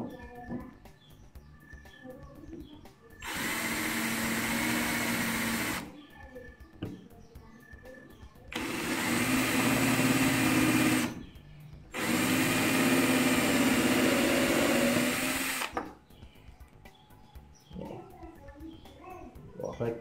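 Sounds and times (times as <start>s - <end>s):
cordless drill drilling into wood: 3.2s - 5.9s, 8.5s - 11.2s, 11.9s - 15.8s.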